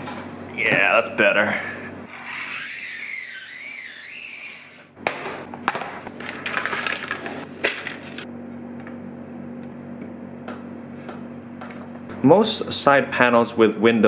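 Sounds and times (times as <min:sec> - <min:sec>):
knife scoring acrylic with squeak: 0:02.1 - 0:04.9.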